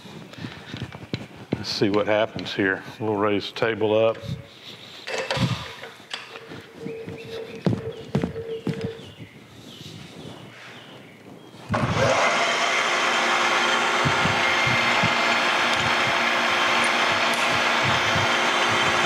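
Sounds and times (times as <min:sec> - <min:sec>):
milling machine spindle running: 0:11.8 - 0:19.0.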